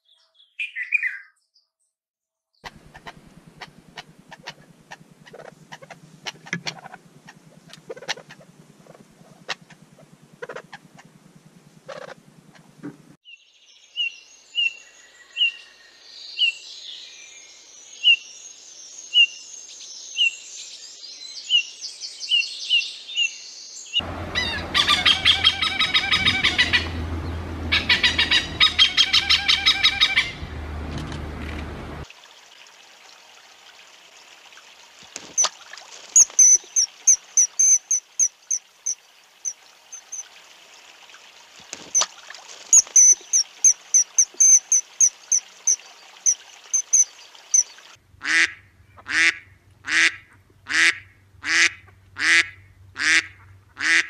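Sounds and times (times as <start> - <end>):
loud rapid bird cackling: 7.6 - 9.8, 10.4 - 10.8, 24.3 - 27.0, 27.6 - 30.4, 36.2 - 39.0, 42.7 - 47.6
shrill high bird whistles: 36.2 - 38.3, 42.8 - 45.1, 46.8 - 47.7
faint bird twittering: 36.2 - 40.3, 42.7 - 47.8
soft piping bird notes: 36.2 - 40.3, 42.7 - 47.7.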